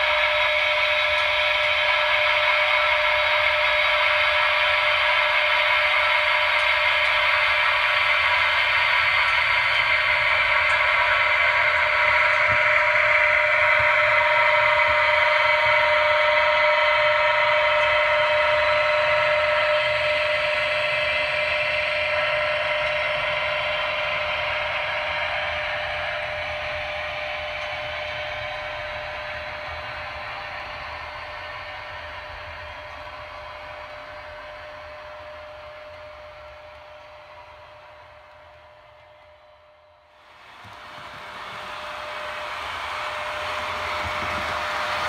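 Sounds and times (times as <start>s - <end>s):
model train whirring on track: 0.0s - 45.0s.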